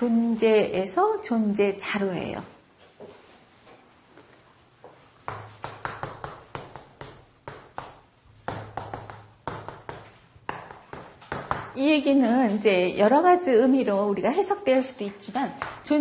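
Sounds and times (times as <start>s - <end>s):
chalk tapping and scratching on blackboard: 4.9s - 11.8s, 15.5s - 16.0s.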